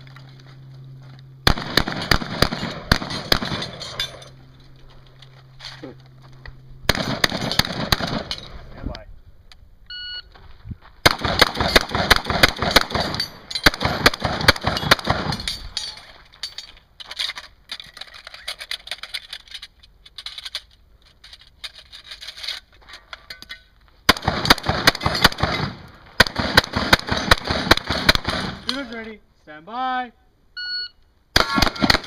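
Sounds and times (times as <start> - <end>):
shotgun shots: 1.4 - 4.0, 6.9 - 8.4, 11.0 - 15.5, 24.1 - 28.8, 31.4 - 32.0
shells being loaded clicks: 12.8 - 23.6.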